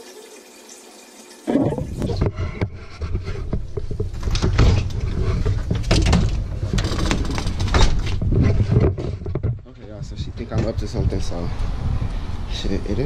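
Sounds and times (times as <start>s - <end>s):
microphone rubbing against clothing: 1.5s - 4.2s, 8.2s - 9.7s
scrapes and bumps: 1.5s - 11.4s.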